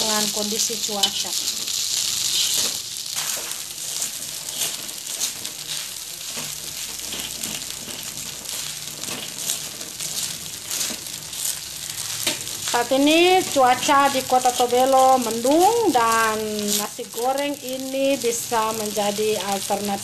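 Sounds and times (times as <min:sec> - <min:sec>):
rice sizzling in a pan: 0:00.0 - 0:20.0
spatula scraping and tapping: 0:02.4 - 0:11.6.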